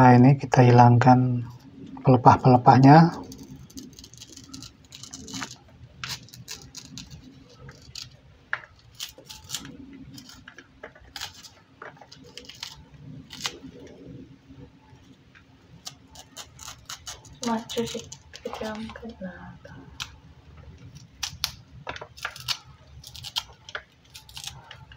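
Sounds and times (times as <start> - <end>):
knife cutting and scraping: 3.1 - 13.9, 15.8 - 18.8, 20.8 - 24.9.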